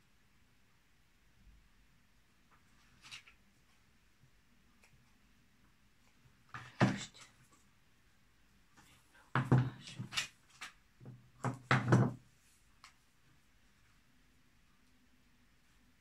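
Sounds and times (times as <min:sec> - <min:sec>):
knock: 0:11.4 - 0:12.2.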